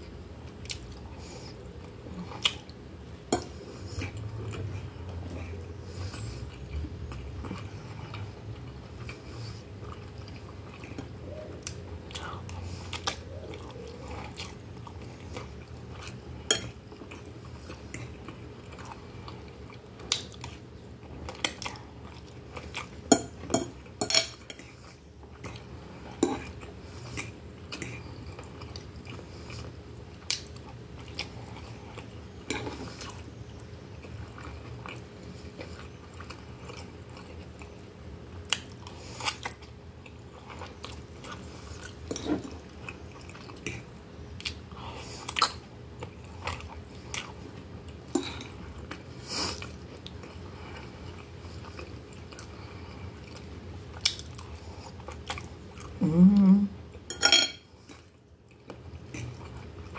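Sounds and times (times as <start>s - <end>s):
steady low hum: 0.0s - 59.9s
chewing noodles: 3.4s - 56.2s
metal fork clinking on glass plate: 57.1s - 57.6s.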